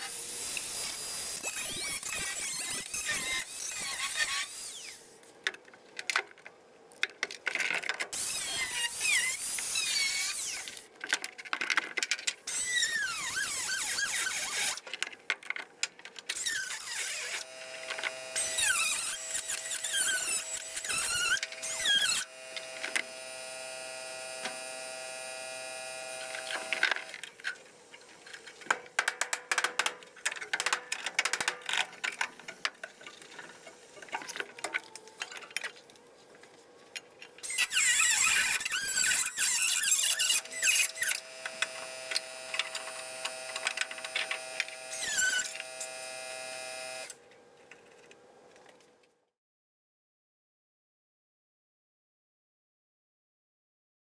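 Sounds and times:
grinder cutting sheet steel: 0.0s - 5.0s, 8.2s - 10.8s, 12.5s - 14.8s, 16.4s - 27.1s, 37.4s - 47.1s.

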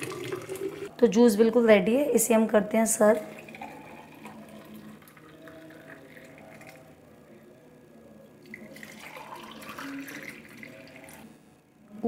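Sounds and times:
juice pouring into glass: 0.0s - 0.9s, 3.2s - 7.0s, 8.4s - 11.3s.

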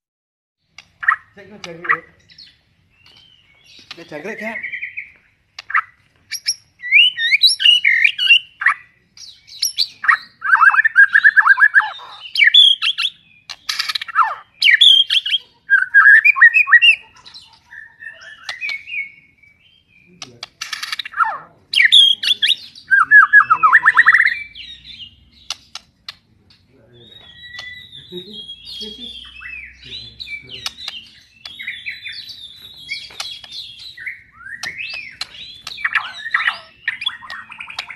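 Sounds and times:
bird singing varied song: 0.6s - 37.9s.

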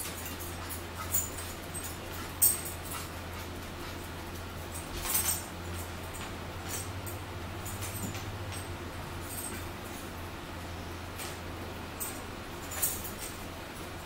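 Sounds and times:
dog collar tags jingling: 0.0s - 3.4s, 4.6s - 10.1s, 12.0s - 13.6s
steady low hum: 0.0s - 14.0s.

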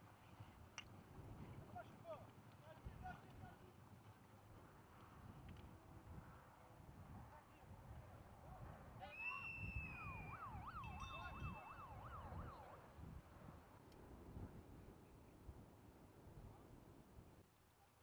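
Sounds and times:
faint emergency siren: 9.1s - 13.0s.

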